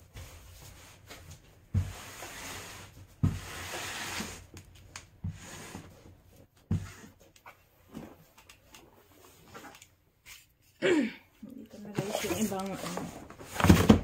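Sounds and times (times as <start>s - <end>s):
cardboard scraping and rubbing: 0.6s - 4.5s, 11.9s - 14.0s.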